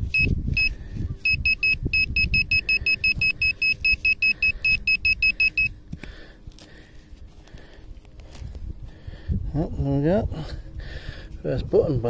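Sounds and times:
pinpointer beeping rapidly: 0:00.0 - 0:05.8.

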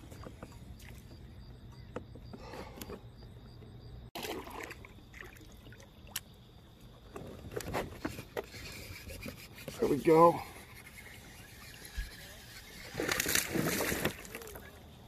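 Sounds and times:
water trickling and splashing: 0:04.2 - 0:15.0.

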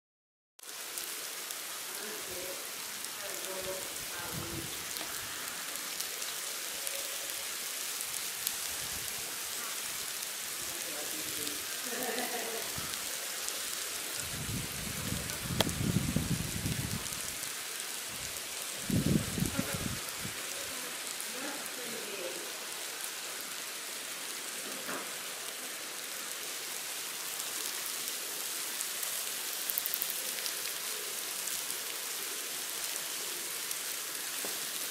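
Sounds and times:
ants crackling on plastic: 0:15.2 - 0:17.5, 0:29.5 - 0:30.8.

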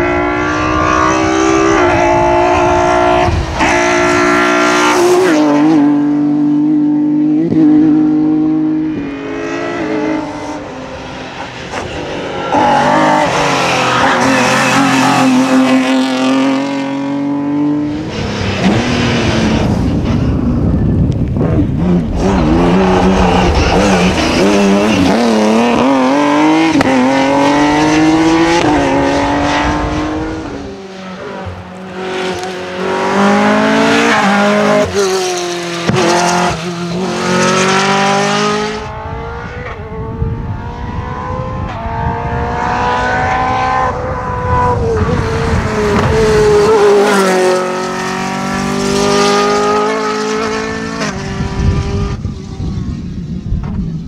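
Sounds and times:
rally car engines revving: 0:00.0 - 0:54.0.

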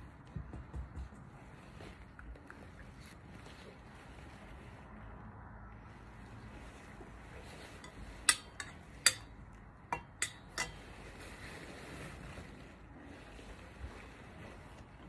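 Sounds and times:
metal spoon tapping metal cup: 0:07.8 - 0:10.8.

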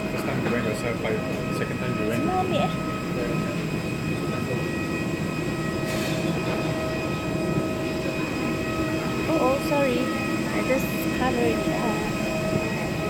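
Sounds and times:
aircraft air systems humming: 0:00.0 - 0:13.0.

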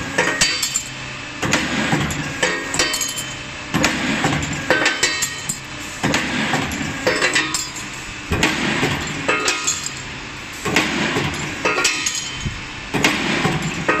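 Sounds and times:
machine metal clanks: 0:00.2 - 0:14.0
ringing clinks of steel: 0:02.7 - 0:03.4, 0:12.0 - 0:12.6.

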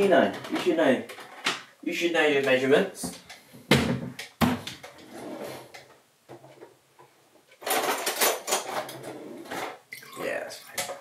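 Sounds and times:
kitchen units shutting: 0:07.6 - 0:09.8.

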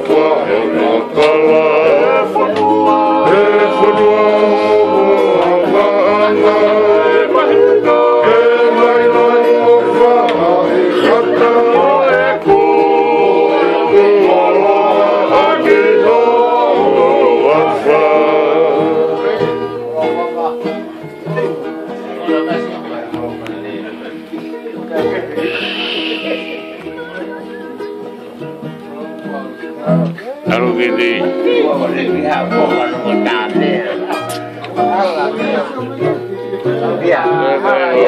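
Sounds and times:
men singing in harmony: 0:00.0 - 0:19.9, 0:25.4 - 0:27.0, 0:34.9 - 0:38.0
strummed guitars: 0:00.0 - 0:38.0.

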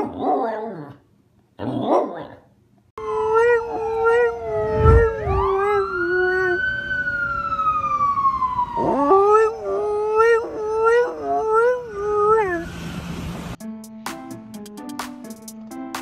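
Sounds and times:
dog howling: 0:03.0 - 0:06.7, 0:08.8 - 0:12.7
police siren wailing: 0:03.0 - 0:13.2.

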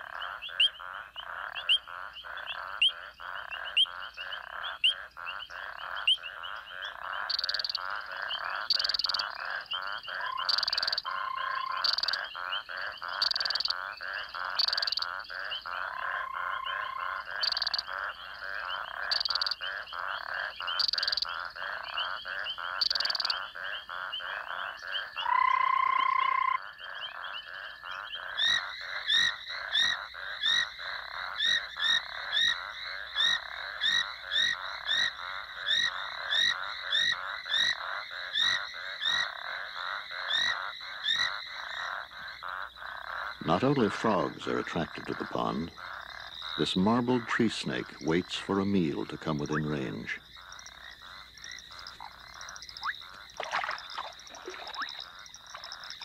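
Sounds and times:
frog chirping call: 0:00.0 - 0:56.0
frogs trilling and clicking: 0:00.0 - 0:56.0
sharp frog clicks: 0:00.0 - 0:56.0
frog whistling trill: 0:51.8 - 0:56.0.

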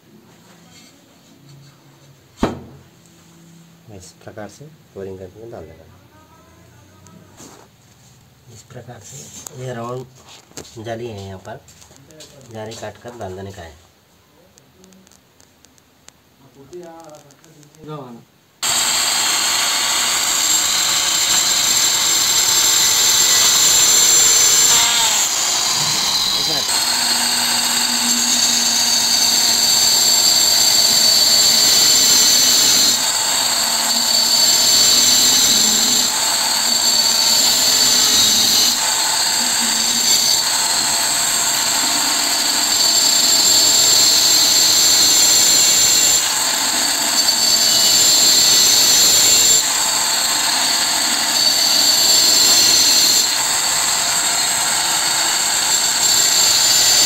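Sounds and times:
tile cutter whining: 0:18.6 - 0:57.0.

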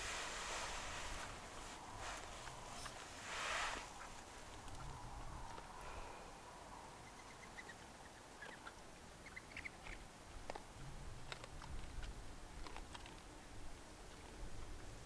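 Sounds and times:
hog crunching feed: 0:08.4 - 0:14.7.

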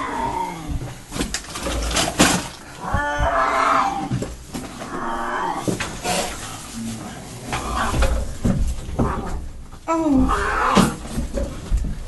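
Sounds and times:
knocks and bumps: 0:00.0 - 0:05.0, 0:07.5 - 0:12.0.

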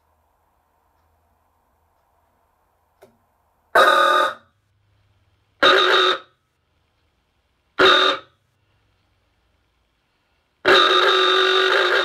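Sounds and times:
car horn blaring: 0:03.8 - 0:04.5, 0:05.6 - 0:06.4, 0:07.8 - 0:08.4, 0:10.6 - 0:12.0.

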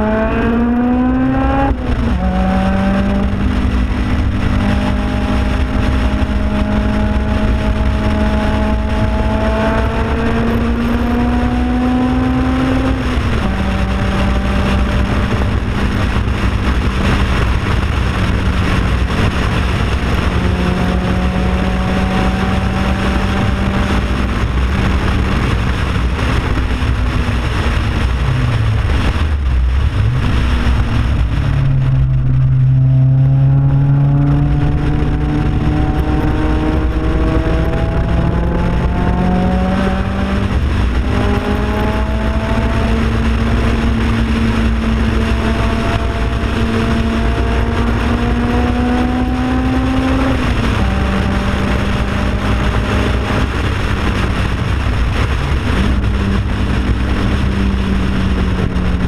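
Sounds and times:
sports car engine at speed: 0:00.0 - 0:59.0
wind and road noise: 0:00.0 - 0:59.0.

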